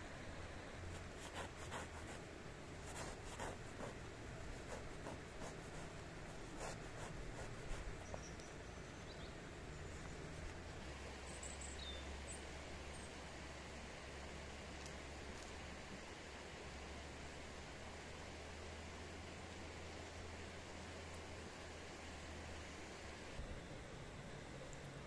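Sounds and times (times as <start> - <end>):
faint bird chirps: 7.9 - 10.3, 11.2 - 13.2.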